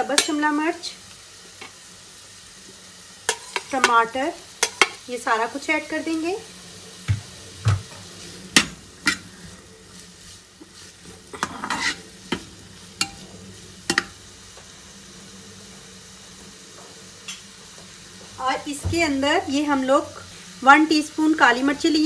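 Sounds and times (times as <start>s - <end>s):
vegetables sizzling softly: 0.0s - 22.0s
spoon scraping and clinking on pan: 3.3s - 3.9s, 11.4s - 13.2s, 13.9s - 14.2s.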